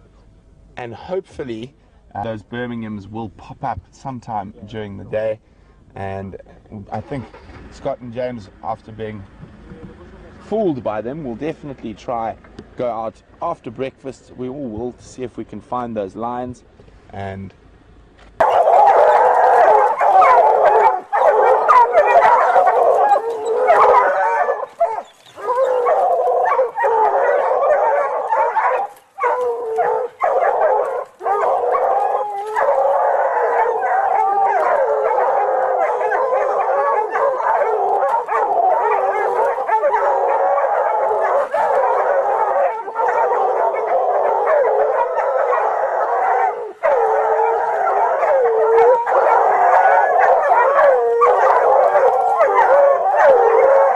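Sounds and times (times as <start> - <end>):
animals howling and yelping: 18.4 - 53.9.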